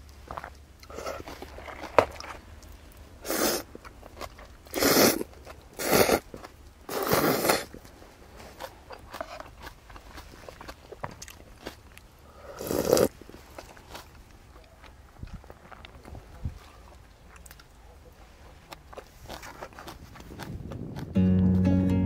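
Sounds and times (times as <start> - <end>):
person eating mouth sounds: 12.4 - 13.1.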